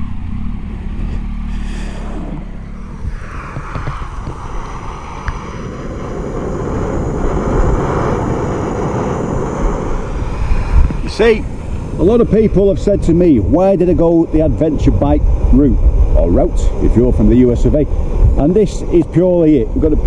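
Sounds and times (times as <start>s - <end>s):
motorcycle engine running: 0.0s - 4.6s
camping stove hissing: 1.4s - 14.6s.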